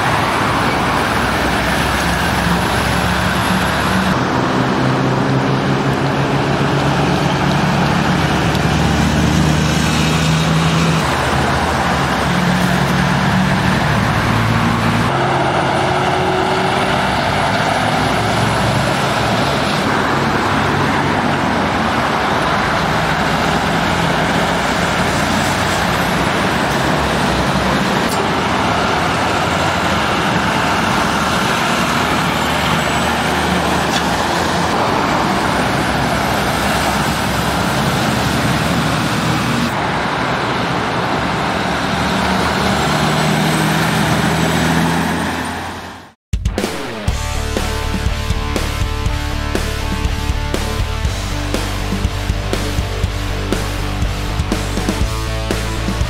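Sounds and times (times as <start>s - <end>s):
lorries passing close by: 0.0s - 46.2s, 47.1s - 56.0s
road traffic noise: 0.0s - 56.0s
lorry low engine note: 46.5s - 56.0s.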